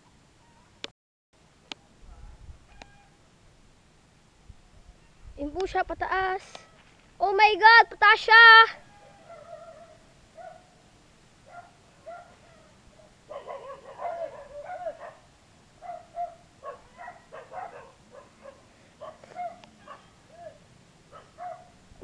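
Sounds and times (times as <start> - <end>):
dog barking: 8.9 - 10.8, 11.4 - 21.8.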